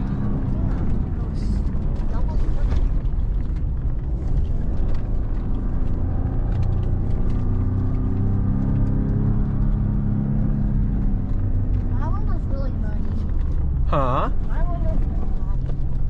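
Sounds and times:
truck engine under load: 0:00.0 - 0:16.0
tyres rumbling on rough track: 0:00.0 - 0:16.0.

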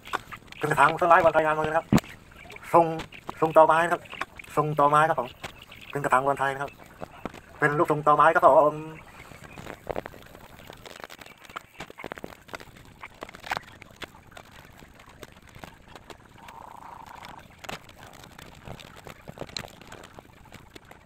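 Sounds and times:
animal call: 0:00.0 - 0:12.1, 0:15.6 - 0:20.2.

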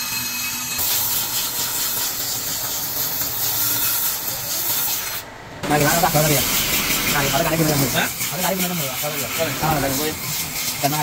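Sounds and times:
brake lathe scraping hiss: 0:00.0 - 0:11.0.

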